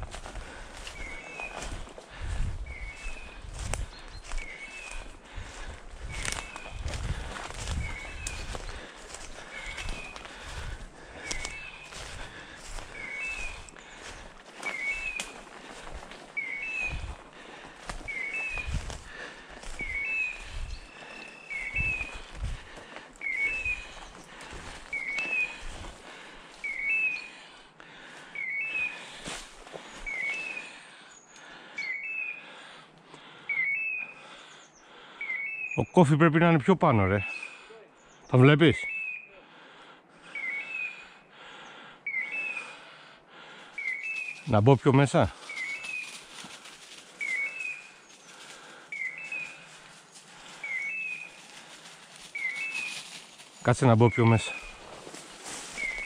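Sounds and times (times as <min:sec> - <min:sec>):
footsteps through dry leaves: 0:00.0 - 0:26.7, 0:29.0 - 0:30.6, 0:45.3 - 0:56.0.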